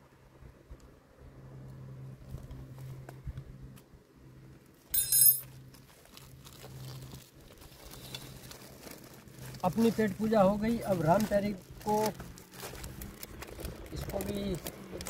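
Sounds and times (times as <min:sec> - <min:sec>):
low hum: 0:00.0 - 0:05.6
bright metallic ring: 0:04.9 - 0:05.5.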